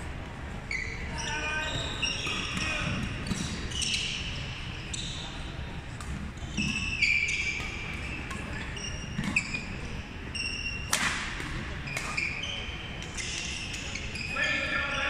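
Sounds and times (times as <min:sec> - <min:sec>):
shoes squeaking on hardwood floor: 0:00.7 - 0:05.4, 0:06.4 - 0:10.8, 0:12.0 - 0:15.0
rackets hitting shuttlecock: 0:05.9 - 0:13.9.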